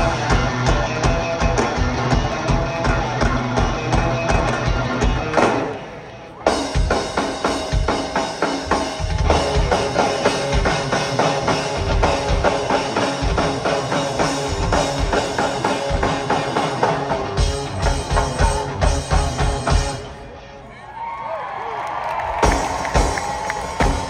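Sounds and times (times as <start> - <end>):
live rock band playing: 0.0 - 20.7, 22.2 - 24.0
drum kit and timbales beating: 6.5 - 20.0, 22.4 - 24.0.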